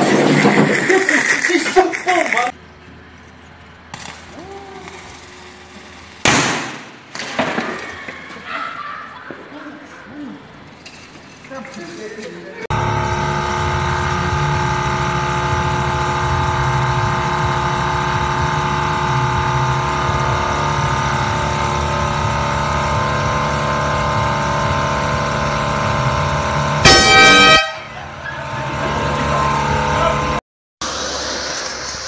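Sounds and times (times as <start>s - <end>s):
loud air horn blast: 26.8s - 28.1s.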